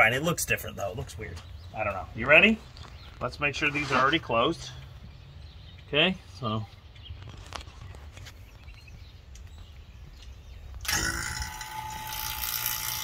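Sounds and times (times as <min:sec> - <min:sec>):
vacuum pump buzzing whine: 0:10.9 - 0:13.0.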